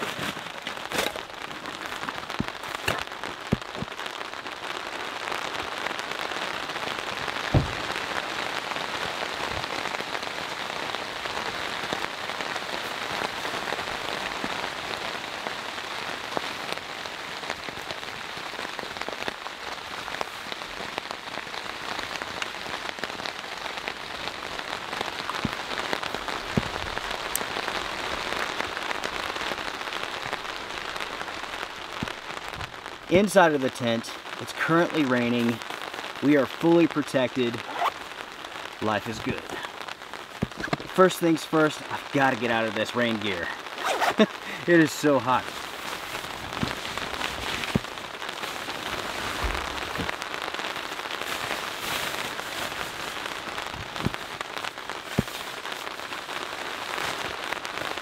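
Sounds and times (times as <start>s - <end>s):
rain on tent fabric: 0.0s - 58.0s
knocks and thumps: 7.5s - 8.0s.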